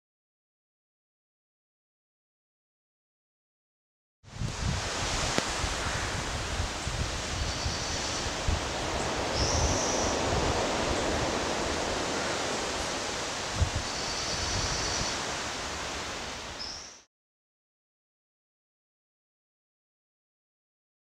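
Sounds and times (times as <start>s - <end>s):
wind: 4.2s - 17.1s
distant ocean surf: 4.5s - 17.0s
faint high-pitched bird calls: 7.4s - 8.4s, 9.0s - 10.3s, 13.8s - 15.5s, 16.6s - 17.1s.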